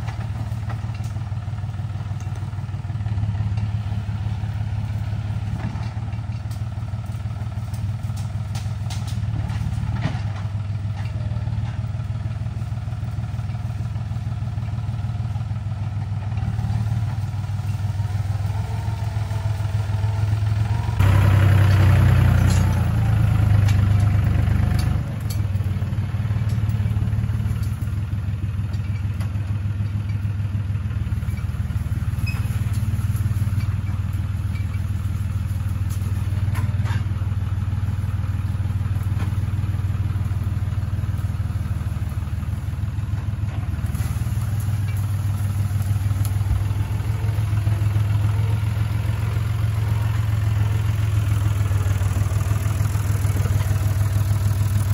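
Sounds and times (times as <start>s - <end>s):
diesel tractor engine running: 0.0s - 54.9s
branches cracking and clattering: 5.4s - 11.8s, 31.2s - 54.9s.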